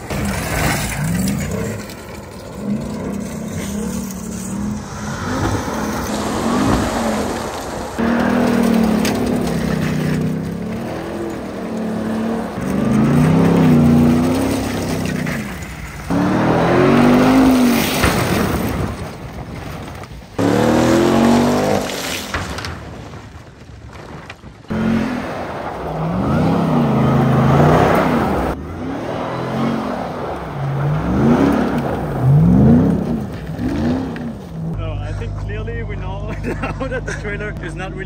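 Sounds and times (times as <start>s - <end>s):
truck engine revving hard: 0.0s - 19.1s, 20.4s - 22.3s, 24.7s - 35.6s
tyres spinning on gravel: 0.0s - 38.0s.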